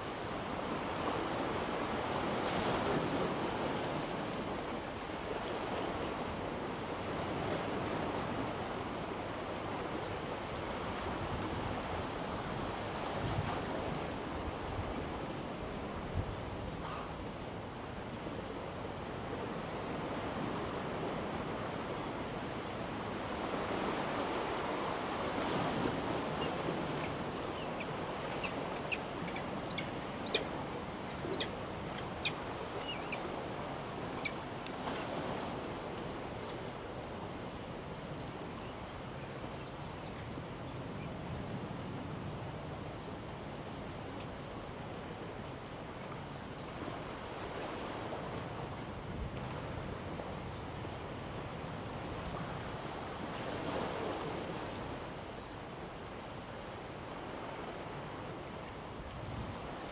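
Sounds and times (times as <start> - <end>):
sea surf: 0.0 - 16.2, 18.2 - 37.6, 51.3 - 59.9
short high bird calls: 26.4 - 30.5, 31.1 - 33.2.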